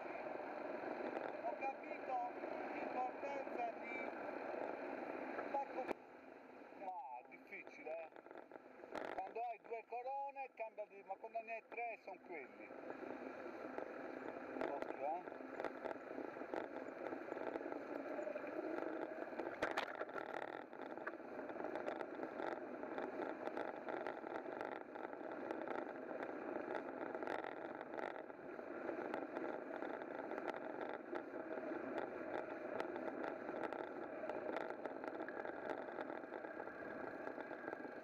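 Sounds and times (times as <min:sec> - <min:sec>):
rolling and street noise: 0:00.0 - 0:06.8, 0:12.2 - 0:38.0
scattered clicks and knocks: 0:08.1 - 0:09.4, 0:13.7 - 0:38.0.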